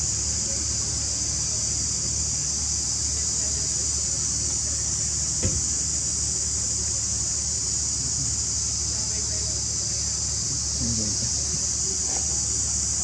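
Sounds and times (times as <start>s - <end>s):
insects buzzing: 0.0s - 13.0s
brief knock: 5.4s - 5.7s.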